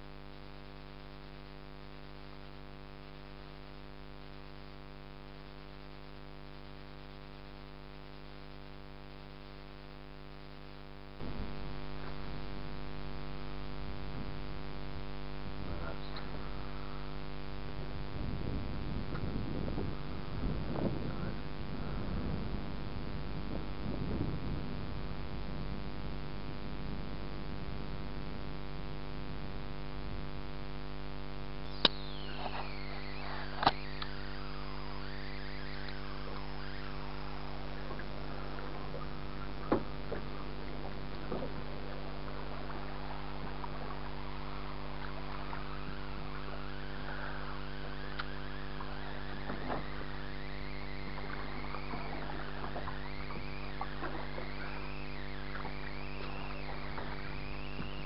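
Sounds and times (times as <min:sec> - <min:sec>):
steady electrical hum: 0:00.0 - 0:58.0
sharp clicks: 0:31.7 - 0:37.0
boat motor running: 0:31.7 - 0:58.0
thin falling tones: 0:31.7 - 0:58.0
water splashing against hull: 0:32.6 - 0:58.0.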